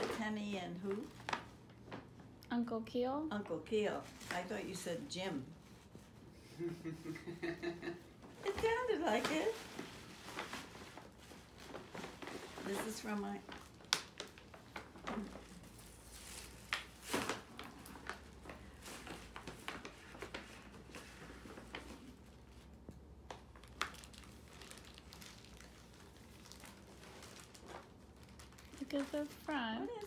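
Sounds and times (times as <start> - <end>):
tissue paper rustling: 3.9 - 6.3, 8.4 - 22.7, 23.5 - 30.0.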